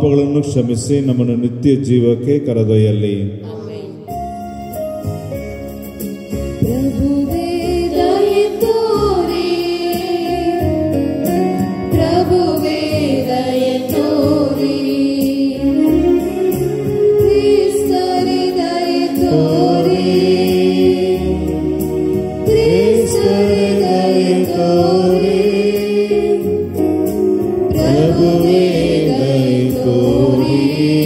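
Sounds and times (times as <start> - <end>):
sustained chordal accompaniment: 4.2 - 31.0
voices singing a hymn: 6.6 - 31.0.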